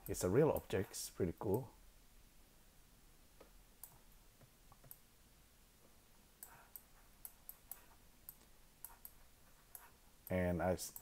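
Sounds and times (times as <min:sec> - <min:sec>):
computer mouse clicks: 0:03.4 - 0:05.0, 0:06.4 - 0:11.0.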